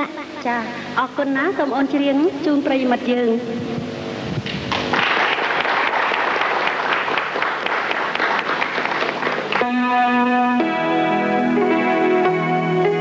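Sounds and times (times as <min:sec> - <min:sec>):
audience applauding: 0:04.7 - 0:09.8
electronic keyboard chords: 0:09.4 - 0:13.0.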